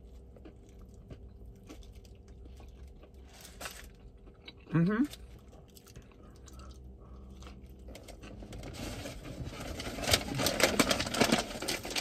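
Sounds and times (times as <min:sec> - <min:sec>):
paper wrapper crinkling: 0:07.8 - 0:12.0.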